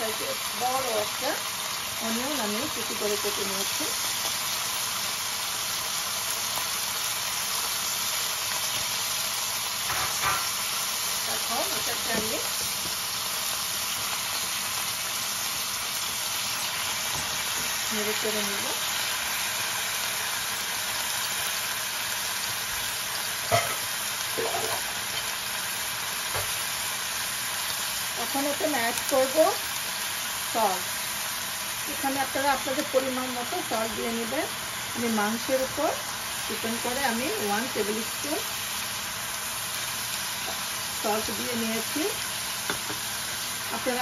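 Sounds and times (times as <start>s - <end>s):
meat and onion sizzling in oil: 0.0s - 44.0s
knocks on a pan: 9.9s - 10.5s.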